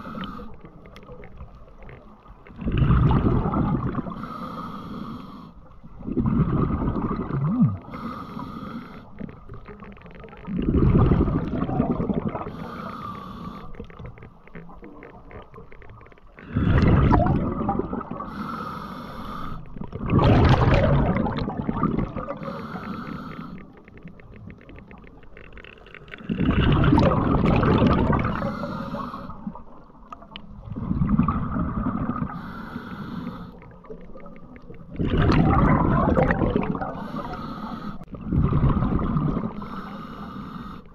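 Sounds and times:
diver breathing underwater: 0:00.0 - 0:00.8, 0:02.6 - 0:09.5, 0:10.8 - 0:14.3, 0:16.4 - 0:24.0, 0:26.2 - 0:29.8, 0:30.8 - 0:34.3, 0:35.0 - 0:40.9
faint hissing: 0:03.6 - 0:06.0, 0:07.8 - 0:10.4, 0:12.0 - 0:14.8, 0:17.8 - 0:20.0, 0:21.3 - 0:25.0, 0:28.0 - 0:30.3, 0:31.1 - 0:34.9, 0:36.5 - 0:38.1, 0:38.9 - 0:40.9.

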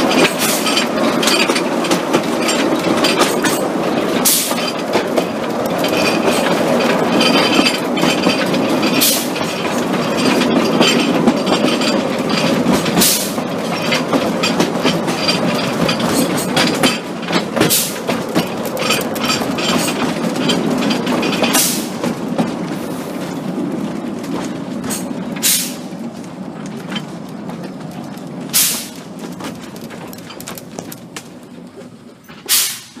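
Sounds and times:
train wheels clicking over rail joints: 0:00.0 - 0:33.0
short steam hiss: 0:25.4 - 0:25.8, 0:32.5 - 0:33.0.

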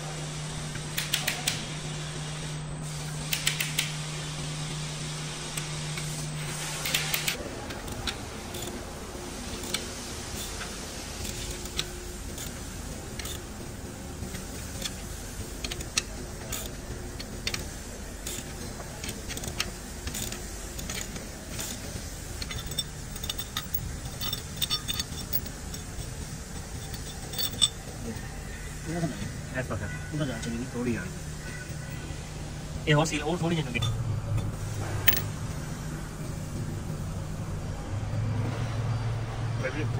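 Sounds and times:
low workshop hum: 0:00.0 - 0:39.9
ratchet wrench clicking: 0:00.9 - 0:01.6, 0:03.3 - 0:03.9, 0:06.7 - 0:08.8, 0:09.6 - 0:13.5, 0:14.3 - 0:28.3
small steel parts clinking: 0:14.3 - 0:28.3, 0:33.6 - 0:35.4.

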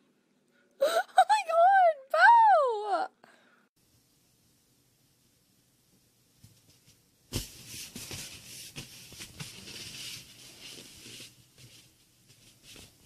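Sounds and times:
scratchy hissy noise: 0:06.4 - 0:13.0.

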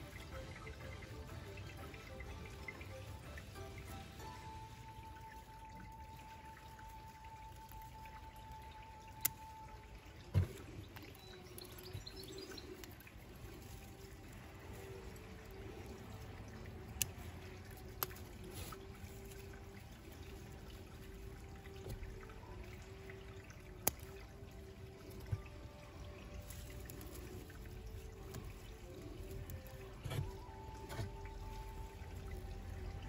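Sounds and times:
handling of foliage: 0:10.3 - 0:33.0.

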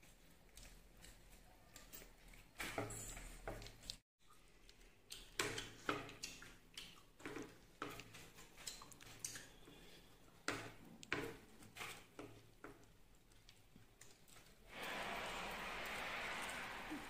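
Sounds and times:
chewing and lip smacks: 0:03.8 - 0:10.0.

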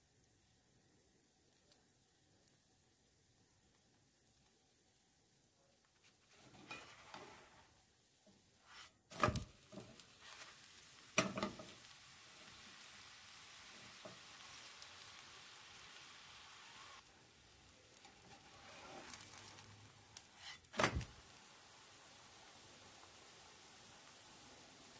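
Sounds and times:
crepe sizzling: 0:05.7 - 0:24.9
spatula scraping pan: 0:06.3 - 0:07.7, 0:08.6 - 0:10.6, 0:17.9 - 0:19.6, 0:20.2 - 0:20.8.

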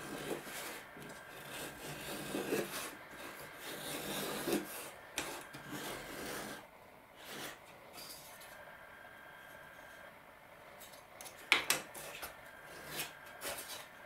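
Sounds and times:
plane shaving wood: 0:00.0 - 0:07.6.

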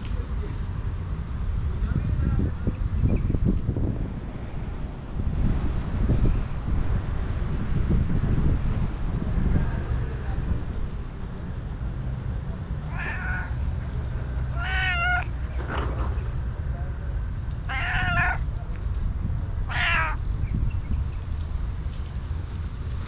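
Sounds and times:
cat meowing: 0:12.8 - 0:13.6, 0:14.5 - 0:15.5, 0:17.6 - 0:18.5, 0:19.6 - 0:20.2.

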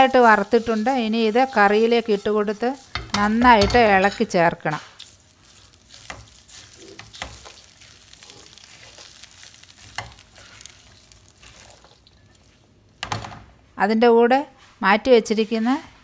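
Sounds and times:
spatula scraping and rustling: 0:00.0 - 0:13.1
spatula knocking on pot: 0:02.9 - 0:04.3.

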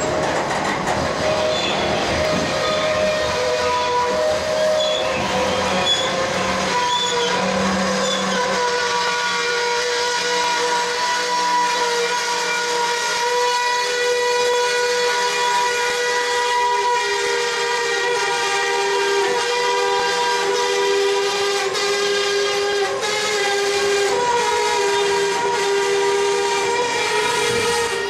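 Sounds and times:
passing train rumble: 0:00.0 - 0:28.0
train wheels squealing on rail: 0:00.0 - 0:28.0.

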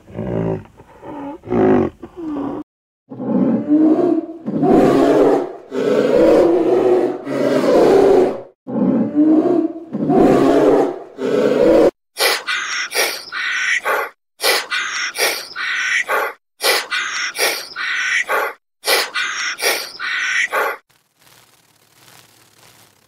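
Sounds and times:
deep roar: 0:03.1 - 0:11.9
animal call sound effect: 0:12.2 - 0:20.8.

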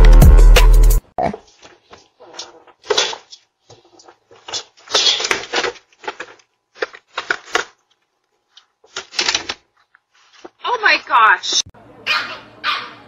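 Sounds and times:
rustling and scuffing: 0:08.4 - 0:10.8.

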